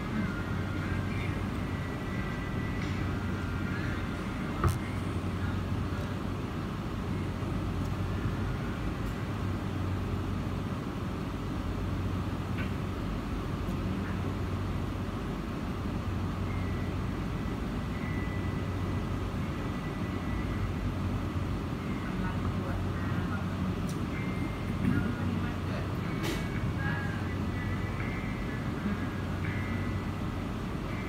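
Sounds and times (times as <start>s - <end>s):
constant low hum: 0.0s - 31.0s
muffled street traffic rumble: 0.0s - 31.0s.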